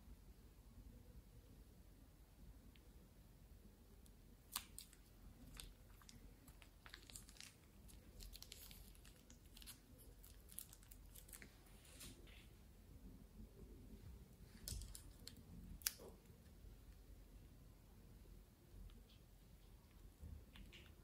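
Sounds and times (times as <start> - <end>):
plastic piping bag crinkling: 4.4 - 12.4, 14.4 - 16.3.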